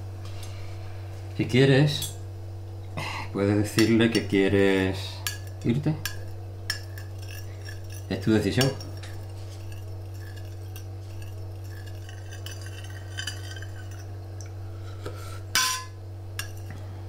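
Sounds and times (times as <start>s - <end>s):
steady low hum: 0.0s - 17.0s
spoons clinking on plates: 5.2s - 14.5s, 15.6s - 16.8s.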